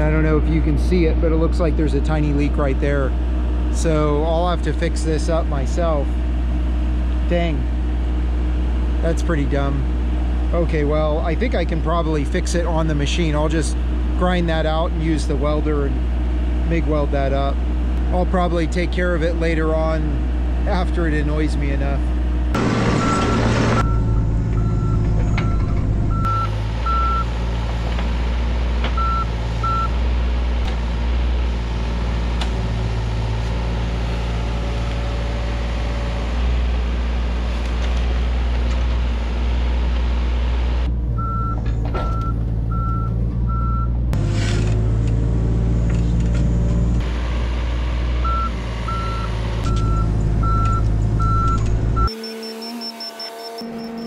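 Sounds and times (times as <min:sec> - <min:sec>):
diesel engine running: 0:00.0 - 0:54.0
motion alarm beeping: 0:23.0 - 0:27.3, 0:29.0 - 0:29.9, 0:41.2 - 0:43.9, 0:48.3 - 0:54.0.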